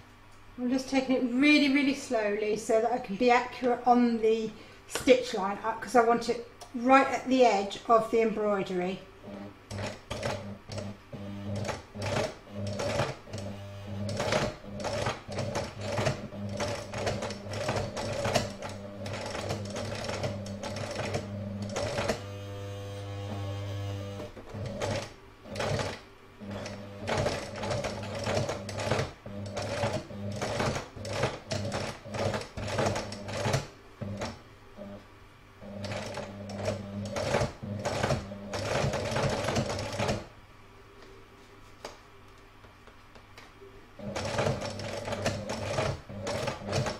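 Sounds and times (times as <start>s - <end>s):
sewing machine stitching: 9.2s - 35.0s, 35.6s - 40.3s, 44.0s - 46.9s.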